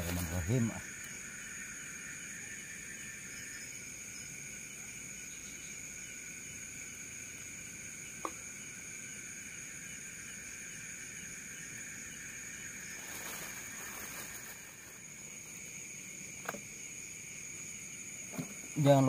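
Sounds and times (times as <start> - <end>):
night insects droning: 0.0 - 19.0.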